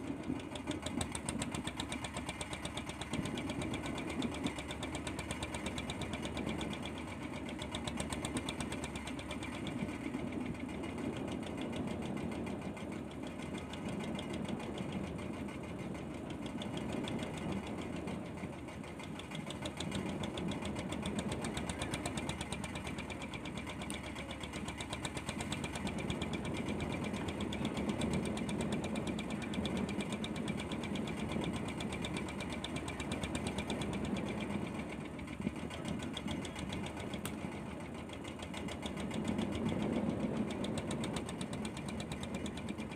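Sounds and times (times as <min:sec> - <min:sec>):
boat engine knocking: 0:00.0 - 0:42.9
sea and wind noise: 0:00.0 - 0:42.9.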